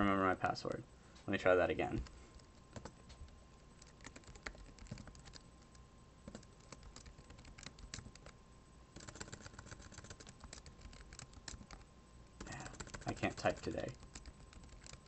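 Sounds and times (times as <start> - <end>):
typing on computer keyboard: 2.4 - 3.0, 3.8 - 5.4, 6.3 - 8.4, 9.0 - 11.8, 12.4 - 15.0.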